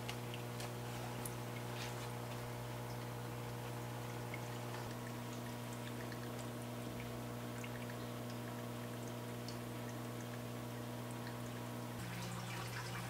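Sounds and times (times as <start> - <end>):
low steady hum: 0.0 - 13.0
water trickling and dripping: 0.0 - 13.0.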